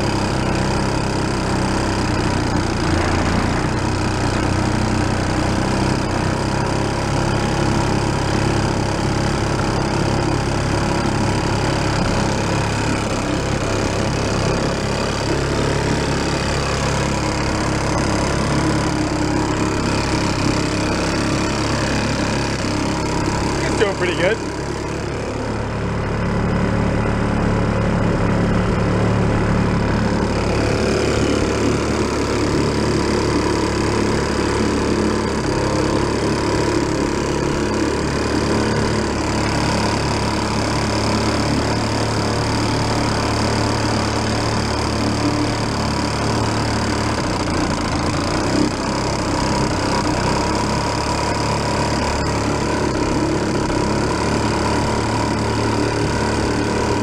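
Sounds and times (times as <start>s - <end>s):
outboard motor running: 0.0s - 57.0s.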